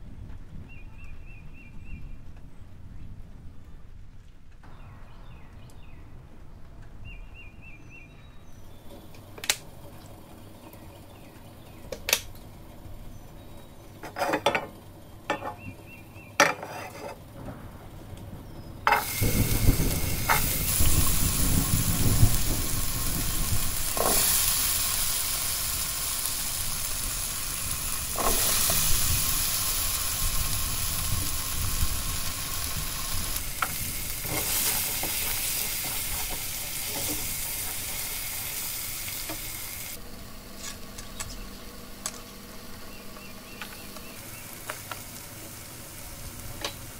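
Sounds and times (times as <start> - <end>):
potato sizzling in hot oil: 18.9 - 40.0, 43.9 - 46.9.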